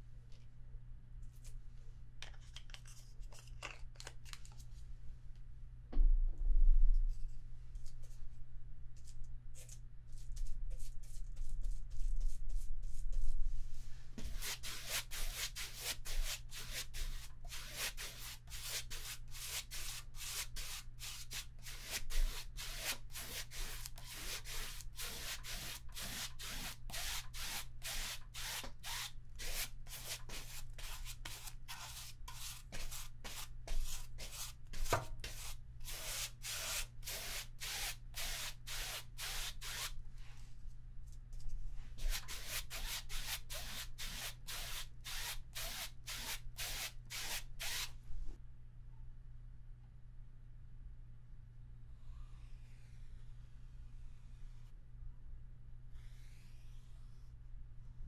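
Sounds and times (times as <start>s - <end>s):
paintbrush scratching on canvas: 14.2s - 39.9s, 42.0s - 47.9s.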